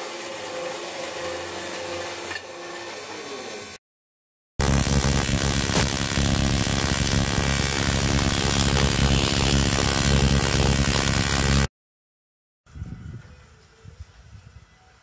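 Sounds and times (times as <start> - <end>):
welding arc buzzing: 4.6 - 11.7.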